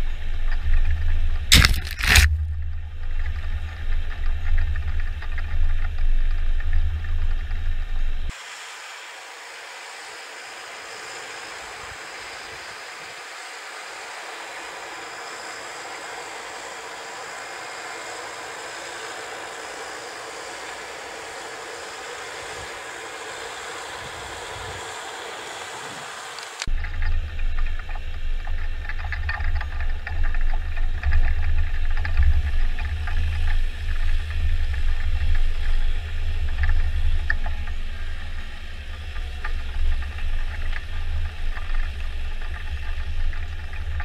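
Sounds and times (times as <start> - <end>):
tracked vehicle engine rumbling: 0.0 - 8.3.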